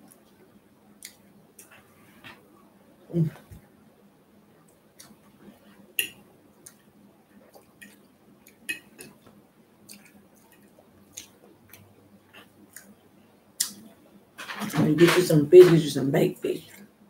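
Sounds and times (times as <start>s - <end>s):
quiet chewing: 1.0s - 2.4s, 4.6s - 13.0s.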